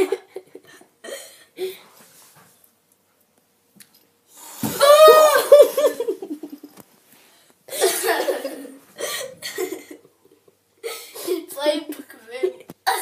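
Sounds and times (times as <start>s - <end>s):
person laughing: 5.0s - 6.7s.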